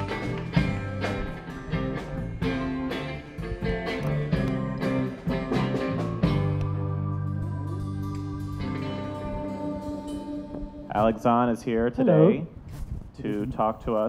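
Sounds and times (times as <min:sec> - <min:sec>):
live band playing instrumental: 0:00.0 - 0:10.9.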